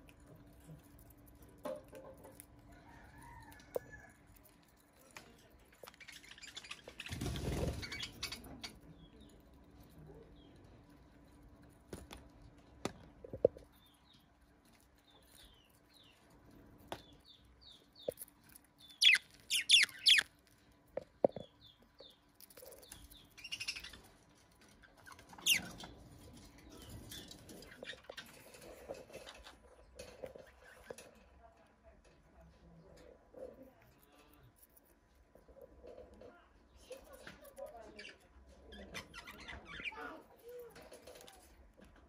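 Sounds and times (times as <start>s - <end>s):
budgerigars chirping: 18.8s - 20.3s.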